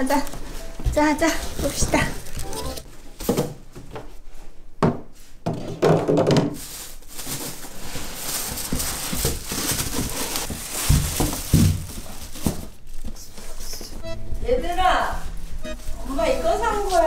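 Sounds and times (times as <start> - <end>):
packaging rustling: 1.3 - 2.6, 6.6 - 13.2.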